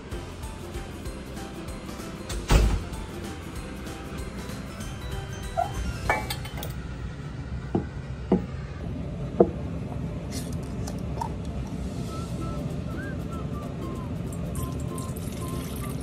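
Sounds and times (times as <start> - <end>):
glass jar and metal bowl clinking: 4.8 - 6.8.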